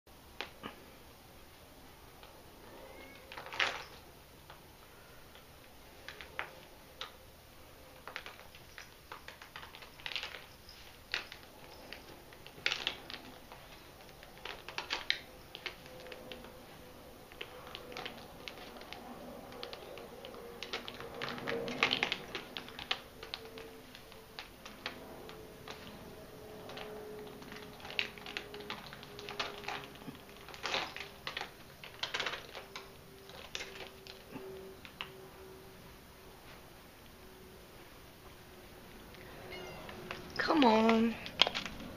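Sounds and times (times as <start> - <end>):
cat claws scraping an umbrella: 8.0 - 34.6.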